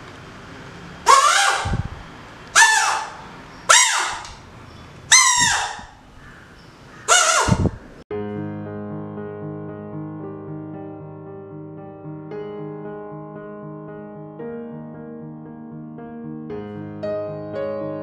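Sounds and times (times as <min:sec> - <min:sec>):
buzzy rubber band harmonica blasts: 0:01.1 - 0:01.9, 0:02.6 - 0:04.4
piano music: 0:08.1 - 0:18.0.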